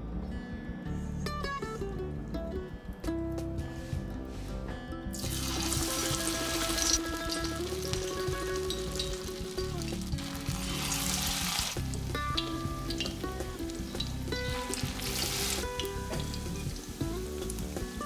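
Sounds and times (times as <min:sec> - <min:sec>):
food sizzling in hot oil: 0:05.1 - 0:18.0.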